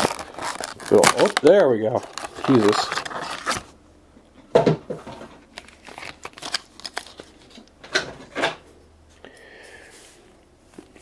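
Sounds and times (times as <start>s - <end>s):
plastic packaging crinkling: 0.0s - 3.7s, 5.4s - 7.7s.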